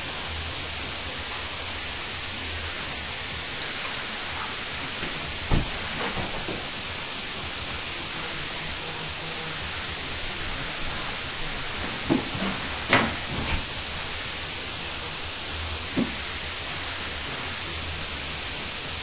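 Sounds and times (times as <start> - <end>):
recording hiss: 0.0 - 19.0
feet thumping on wooden floor: 4.9 - 6.8, 11.6 - 13.8.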